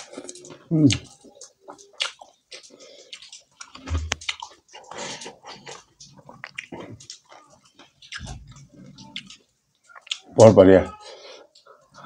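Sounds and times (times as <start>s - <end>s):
person chewing food: 0.0s - 12.0s.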